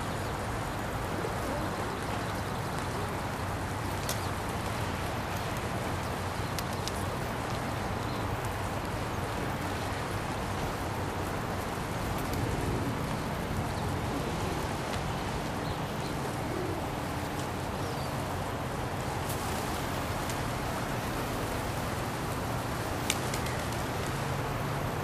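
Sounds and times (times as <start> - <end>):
steady hiss: 0.0 - 25.0
pigeons pecking clicks: 1.3 - 4.6, 5.3 - 8.9, 11.2 - 18.1, 22.2 - 24.1.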